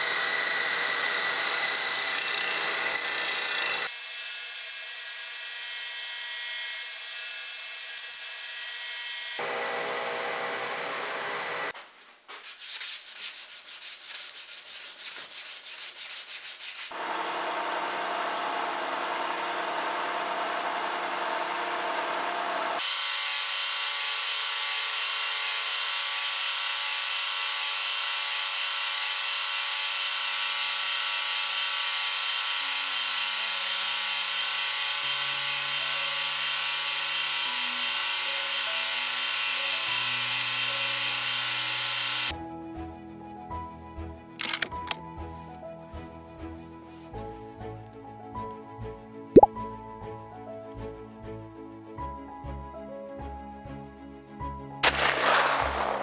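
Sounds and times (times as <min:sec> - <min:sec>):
milling machine cutting wood: 0:00.0 - 0:03.9, 0:08.8 - 0:11.7, 0:17.0 - 0:22.9
hand scraping wood: 0:12.3 - 0:16.9.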